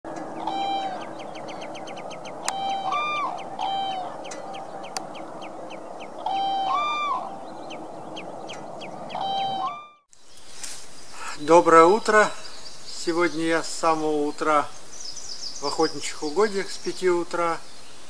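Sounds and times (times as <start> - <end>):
swans honking: 0.1 - 10.1
small birds chirping: 0.1 - 18.0
sharp clicks: 4.3 - 5.1.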